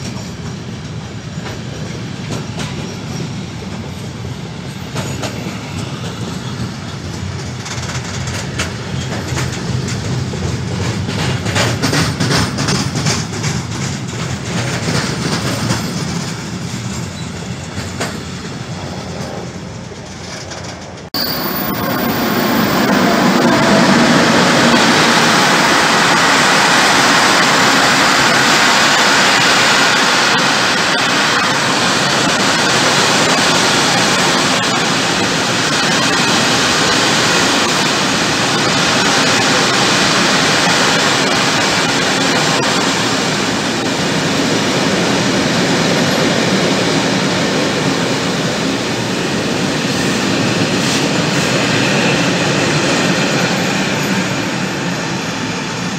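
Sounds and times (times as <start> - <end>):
electric locomotive passing: 0.0 - 55.9
steel wheels rushing on rail: 0.0 - 55.9.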